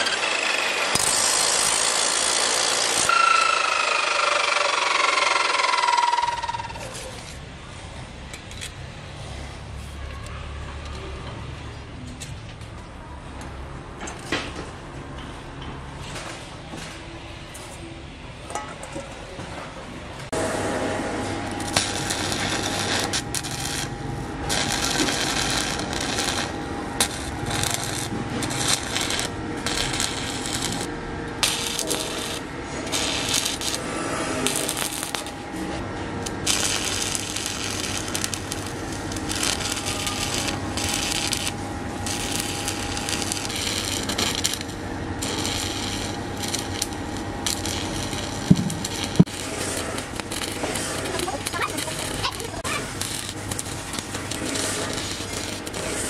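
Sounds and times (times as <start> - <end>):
arc welding crackling sizzle: 0.0 - 7.4, 20.3 - 56.0.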